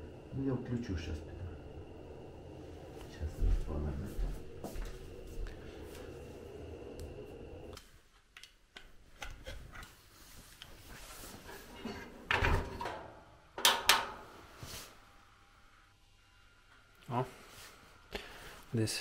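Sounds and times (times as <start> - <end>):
torch lighter flame hissing: 0.0 - 7.8.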